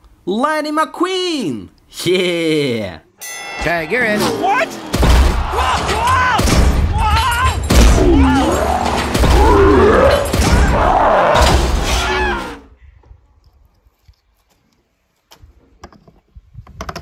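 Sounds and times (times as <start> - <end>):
cartoon characters shouting: 4.0 - 12.6
heavy thuds and crashes: 4.8 - 12.4.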